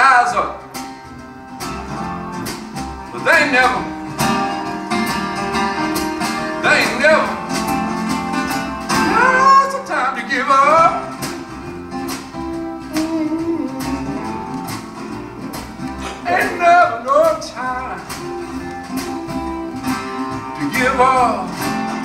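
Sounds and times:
acoustic guitar: 0:00.0 - 0:22.0
person singing: 0:09.0 - 0:09.9, 0:12.8 - 0:14.6, 0:16.0 - 0:18.0.

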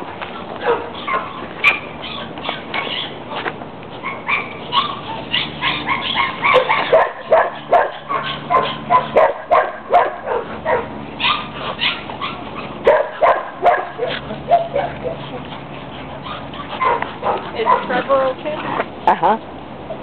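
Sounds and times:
puppies yipping and barking: 0:00.0 - 0:18.8.

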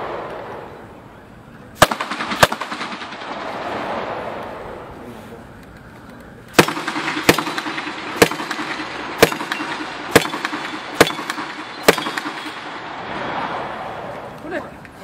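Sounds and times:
gunshots: 0:01.8 - 0:05.0, 0:06.5 - 0:14.1.

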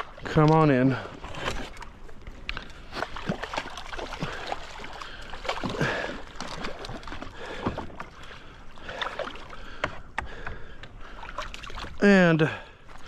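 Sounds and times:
fish splashing at water surface: 0:02.5 - 0:09.8.

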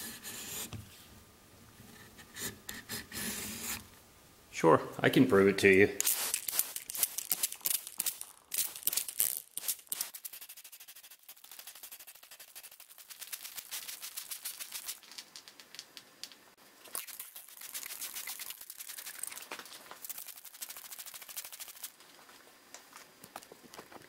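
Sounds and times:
water spattering on wood: 0:06.0 - 0:10.1, 0:16.8 - 0:21.9
spray bottle squirting: 0:06.0 - 0:15.5, 0:16.9 - 0:21.9.

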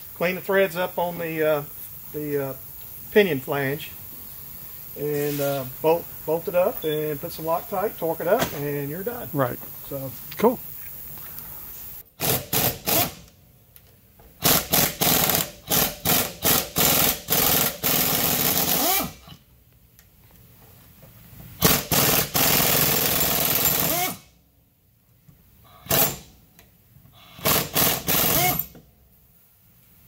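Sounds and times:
pneumatic impact wrench bursts: 0:11.5 - 0:13.3, 0:14.4 - 0:19.5, 0:21.6 - 0:24.4, 0:25.6 - 0:26.5, 0:27.1 - 0:28.8.

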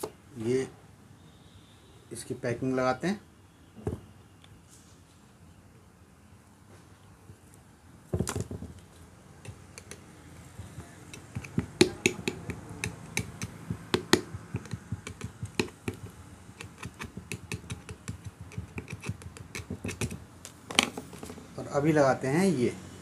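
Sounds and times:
screwdriver clicking on metal: 0:09.4 - 0:10.0, 0:11.0 - 0:20.2.

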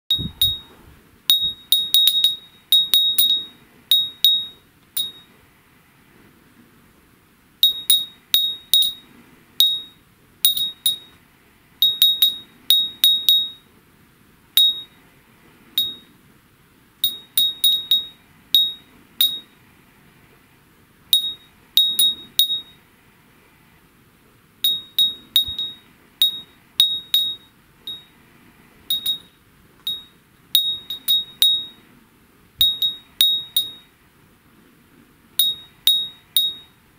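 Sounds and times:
glass wind chime clinking: 0:00.1 - 0:00.7, 0:01.3 - 0:05.3, 0:07.6 - 0:09.0, 0:09.6 - 0:11.2, 0:11.8 - 0:13.6, 0:14.6 - 0:14.9, 0:15.8 - 0:16.1, 0:17.0 - 0:19.5, 0:21.2 - 0:22.8, 0:24.6 - 0:28.1, 0:28.9 - 0:29.3, 0:29.9 - 0:31.8, 0:32.6 - 0:33.9, 0:35.4 - 0:36.7.

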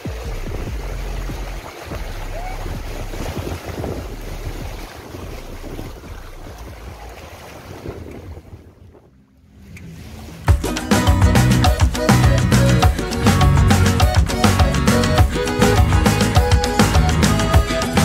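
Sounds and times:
small waves washing over rocks: 0:00.0 - 0:08.8
person wading through water: 0:00.0 - 0:10.8
wind buffeting microphone: 0:00.1 - 0:10.5.

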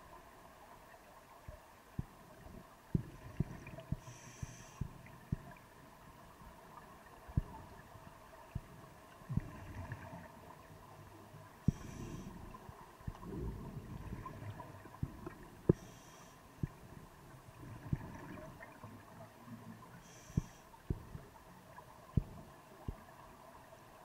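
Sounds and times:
regulator inhalation hiss: 0:04.0 - 0:04.9, 0:11.7 - 0:12.4, 0:15.7 - 0:16.5, 0:20.0 - 0:20.8.

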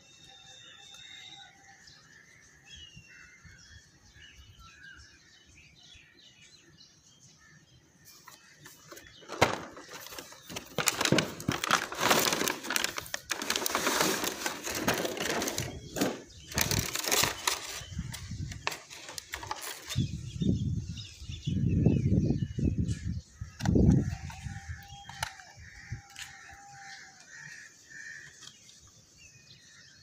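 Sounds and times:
plastic packaging crinkling: 0:08.9 - 0:20.0.

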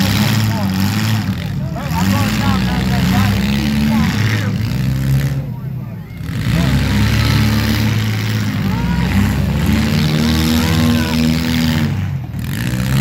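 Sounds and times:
car engines revving: 0:00.0 - 0:13.0
crowd noise: 0:00.0 - 0:13.0
people shouting: 0:05.8 - 0:11.8.

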